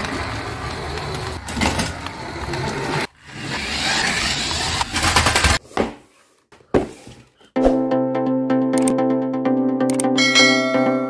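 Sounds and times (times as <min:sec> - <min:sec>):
toy car motor whirring: 0:03.2 - 0:05.6.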